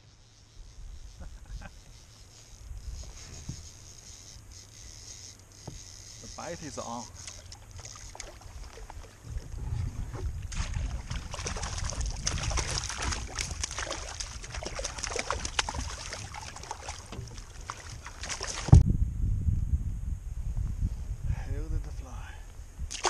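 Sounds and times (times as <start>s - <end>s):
wind rumbling on microphone: 0.6s - 4.0s, 6.2s - 23.0s
water splashing and sloshing: 5.7s - 18.8s.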